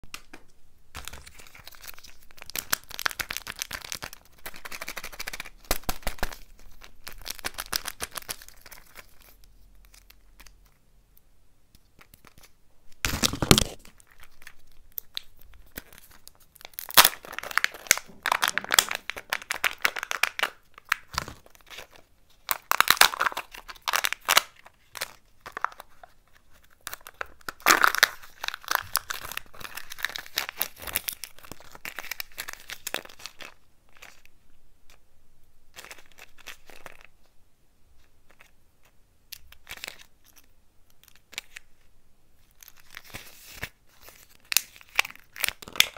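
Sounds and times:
foil crinkling and tearing: 0:01.0 - 0:10.5, 0:12.1 - 0:34.2.

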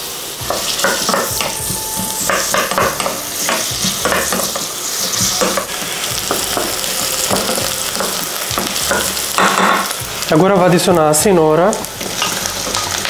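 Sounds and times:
onion and garlic sizzling in oil: 0:00.0 - 0:13.0
utensil scraping and knocking pan: 0:00.5 - 0:09.9.

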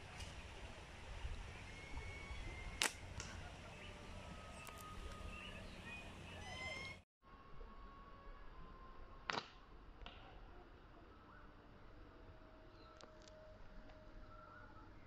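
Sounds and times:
faint high chirps: 0:01.4 - 0:07.0.

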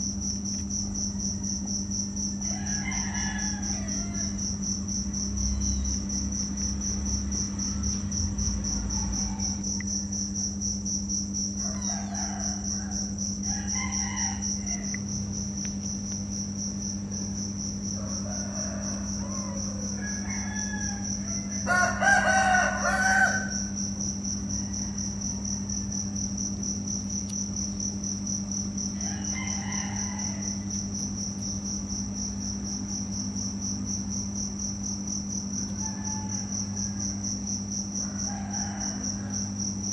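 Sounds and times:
crickets trilling: 0:00.0 - 0:39.9
rooster crowing: 0:02.4 - 0:05.9, 0:07.6 - 0:09.8, 0:11.6 - 0:15.2, 0:17.1 - 0:23.8, 0:28.8 - 0:30.8, 0:35.5 - 0:39.9.

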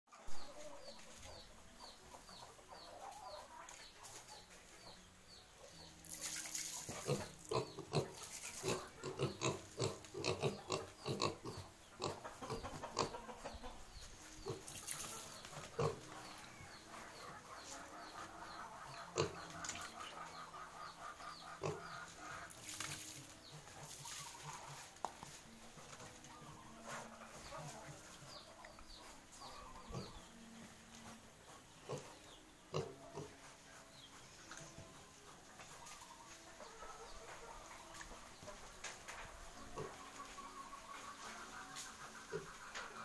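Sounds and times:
piglets grunting and snuffling: 0:06.0 - 0:13.7, 0:14.4 - 0:25.0, 0:26.4 - 0:30.3, 0:31.0 - 0:34.9.

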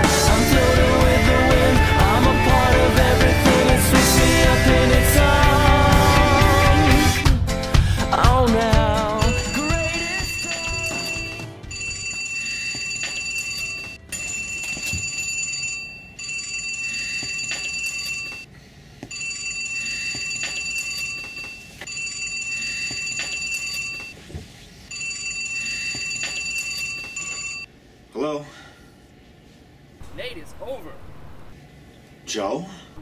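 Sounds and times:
electronic telephone ringing: 0:09.3 - 0:18.4, 0:19.1 - 0:24.1, 0:24.9 - 0:27.7.

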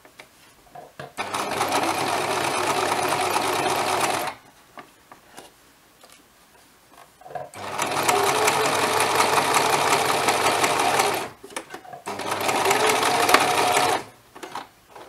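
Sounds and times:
sewing machine stitching: 0:01.2 - 0:04.4, 0:07.5 - 0:11.4, 0:12.0 - 0:15.0.

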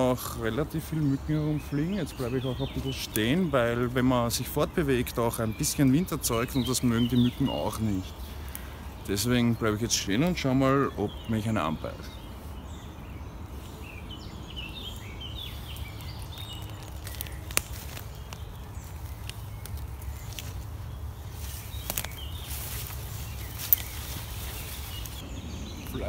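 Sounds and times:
bird chirping: 0:00.0 - 0:26.0
gust rushing through leaves: 0:12.2 - 0:26.0.

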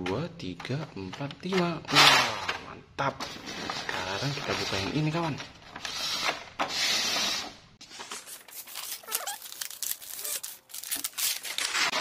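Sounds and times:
cardboard tearing: 0:06.0 - 0:12.0
packaging crinkles and clicks: 0:08.0 - 0:12.0.

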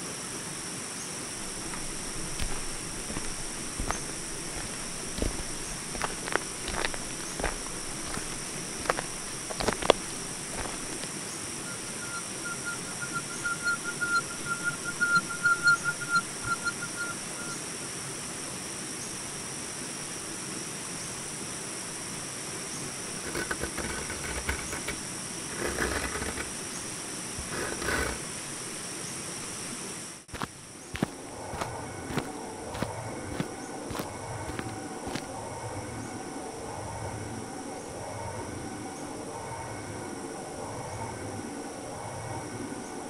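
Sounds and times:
high-pitched insect drone: 0:00.0 - 0:17.8, 0:22.8 - 0:43.0
short rough noises: 0:23.1 - 0:28.5.

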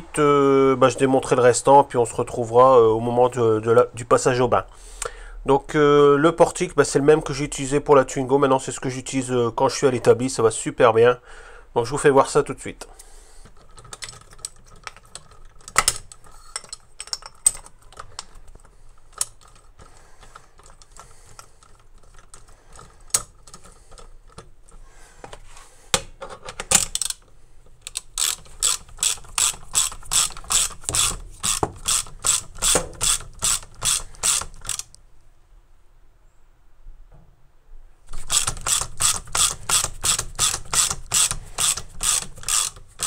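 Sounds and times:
steel tools clinking: 0:14.0 - 0:18.0
ratchet wrench clicking: 0:27.8 - 0:35.0, 0:38.1 - 0:43.0.

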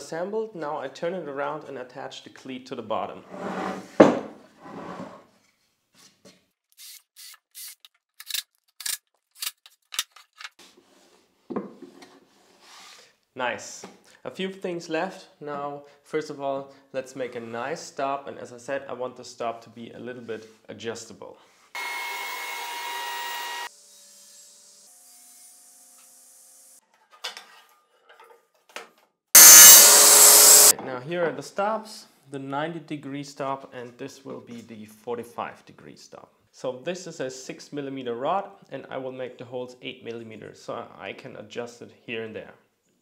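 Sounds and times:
board sliding on bench: 0:03.2 - 0:05.3
wood scraping on wood: 0:03.3 - 0:05.3
wood knocking and scraping on metal: 0:03.4 - 0:04.4
woodworking machine running: 0:29.4 - 0:30.7.

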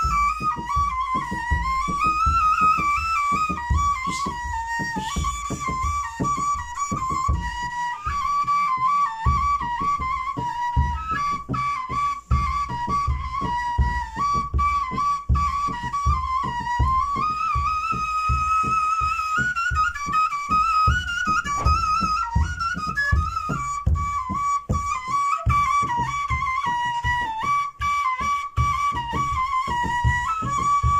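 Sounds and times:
steady drum beat: 0:00.0 - 0:08.5, 0:19.0 - 0:27.3
wooden flute folk tune: 0:00.0 - 0:30.9.

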